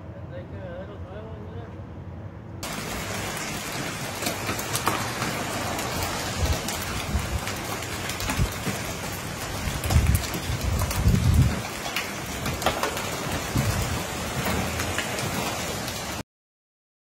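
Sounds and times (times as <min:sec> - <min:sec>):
heavy rain pouring on pavement: 0:02.6 - 0:16.2.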